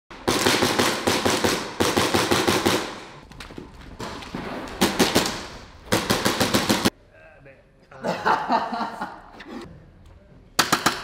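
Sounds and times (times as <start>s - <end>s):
airsoft guns firing full-auto: 0.2s - 3.2s.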